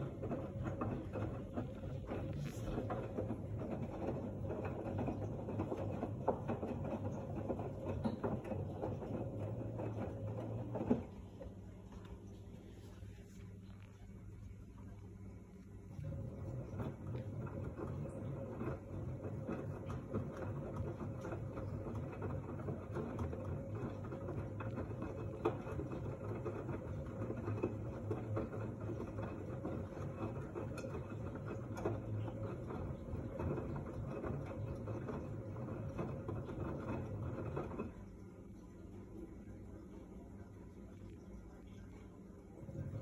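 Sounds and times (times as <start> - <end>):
laundry churning in water: 0.0 - 13.1, 15.4 - 43.0
washing machine running: 0.0 - 43.0.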